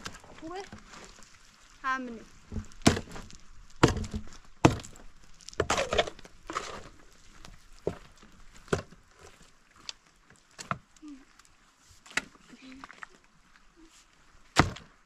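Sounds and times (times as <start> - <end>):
irregular knocks and thuds: 2.4 - 6.9, 7.8 - 9.3.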